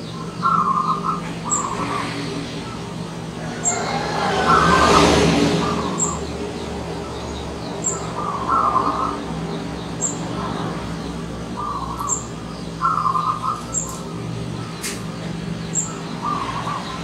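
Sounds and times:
dove cooing: 0:00.0 - 0:06.4, 0:07.8 - 0:09.6, 0:11.6 - 0:14.9, 0:15.8 - 0:17.0.

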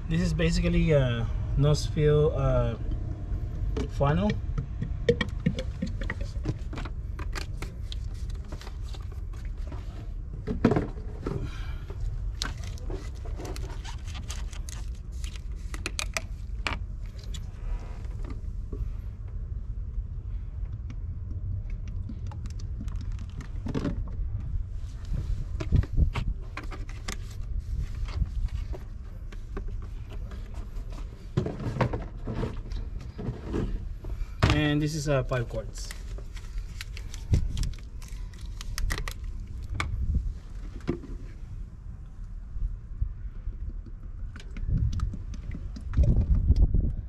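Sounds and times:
steady low rumble: 0:00.0 - 0:47.0
plastic bottles clicking and knocking: 0:03.8 - 0:07.7.

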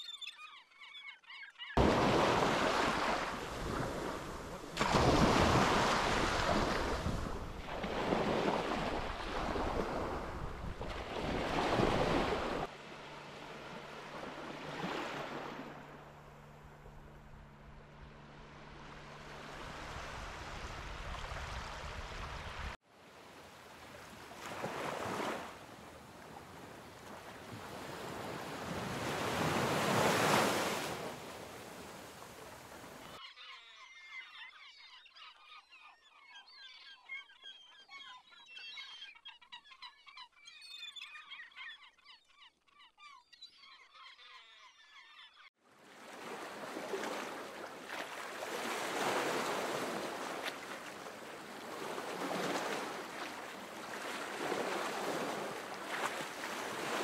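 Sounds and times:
waves washing up a beach: 0:01.8 - 0:16.2, 0:18.4 - 0:33.2, 0:45.8 - 0:57.0.

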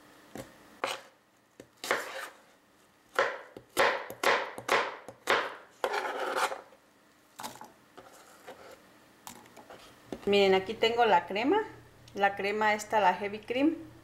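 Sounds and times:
knife chopping apple on board: 0:00.3 - 0:02.3, 0:03.1 - 0:06.6.

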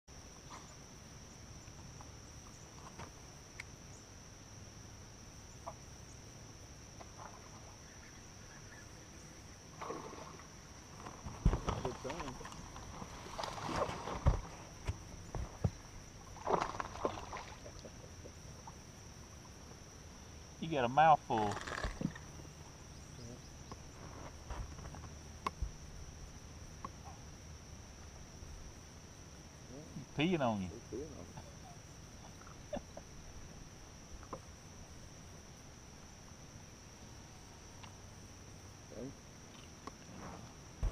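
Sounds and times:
insects trilling: 0:00.1 - 0:40.9
faint bird calls: 0:07.2 - 0:10.4, 0:22.9 - 0:24.0.

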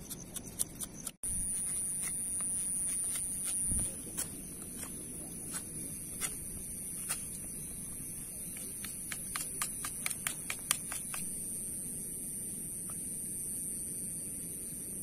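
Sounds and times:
knife cutting stick snapping: 0:08.5 - 0:11.2.

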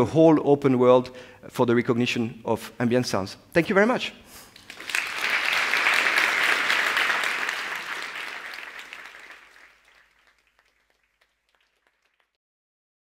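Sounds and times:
audience applauding: 0:04.5 - 0:12.4.

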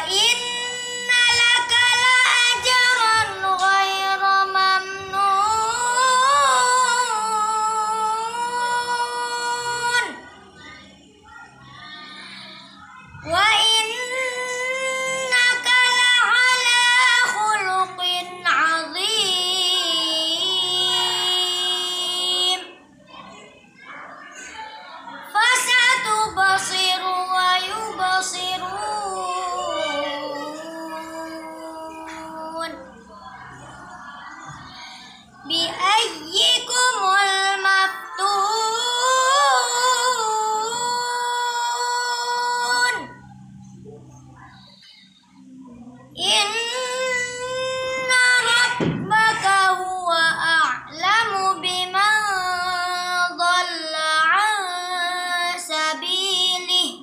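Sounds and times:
boy chanting recitation: 0:00.0 - 0:57.0.

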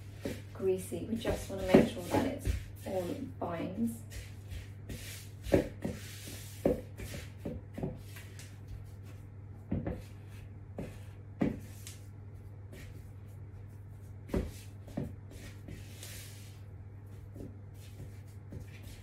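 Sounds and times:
spatula scraping a mixing bowl: 0:00.0 - 0:08.5
steady low hum: 0:00.0 - 0:19.0.

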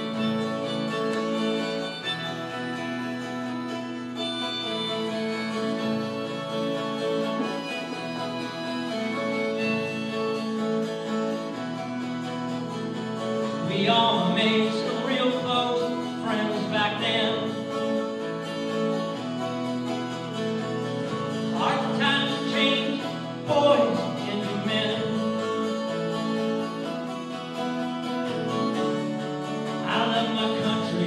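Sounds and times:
amplified acoustic guitar: 0:00.0 - 0:31.0
band holding chords: 0:00.0 - 0:31.0
person singing: 0:13.6 - 0:18.0, 0:21.4 - 0:25.4, 0:29.8 - 0:31.0.

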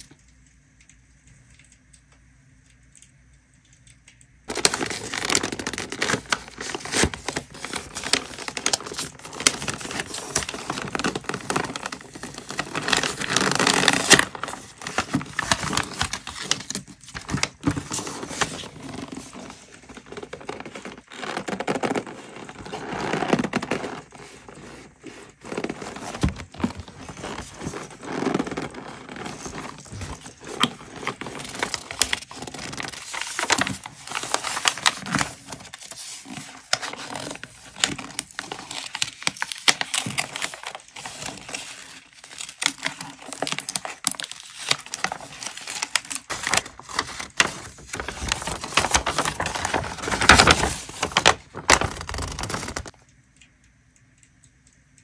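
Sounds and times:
hands handling leather pouch: 0:04.5 - 0:38.1
wrapping paper crinkling: 0:04.5 - 0:53.0.

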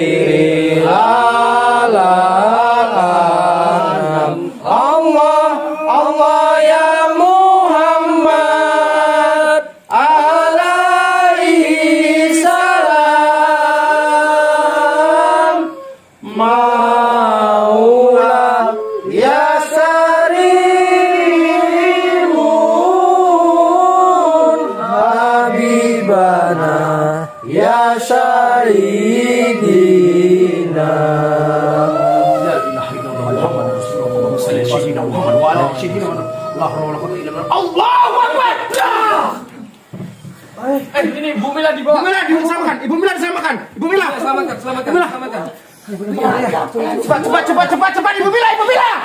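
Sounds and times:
chanting in long held notes: 0:00.0 - 0:39.2.

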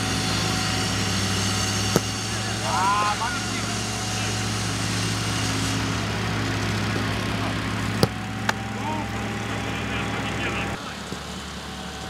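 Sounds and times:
low engine drone: 0:00.0 - 0:12.0
football thuds: 0:01.9 - 0:02.4, 0:08.0 - 0:08.7.

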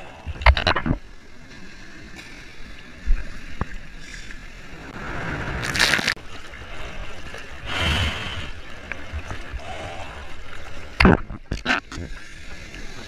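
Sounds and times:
rush of water: 0:00.0 - 0:13.0
paddling splash: 0:04.6 - 0:11.3.

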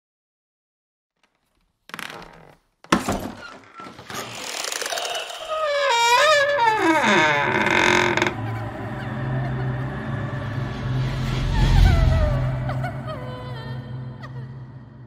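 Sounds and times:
wavering pitched wail: 0:05.4 - 0:14.8.

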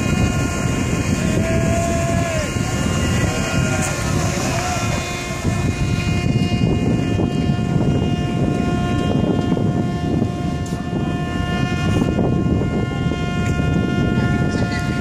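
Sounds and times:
horn on one steady note: 0:00.0 - 0:15.0
low rumble: 0:00.0 - 0:15.0
wind noise on microphone: 0:00.0 - 0:15.0.

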